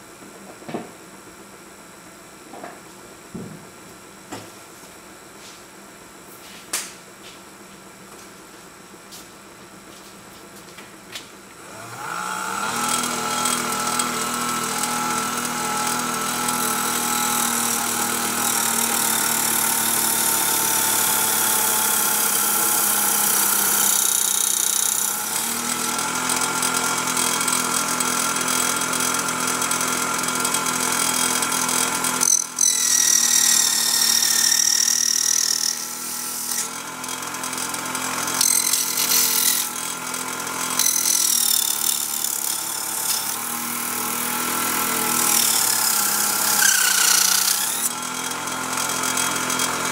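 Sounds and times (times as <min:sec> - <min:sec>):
circular blade cutting wood: 0:11.6 - 0:49.9
toy table saw motor whine: 0:11.6 - 0:49.9.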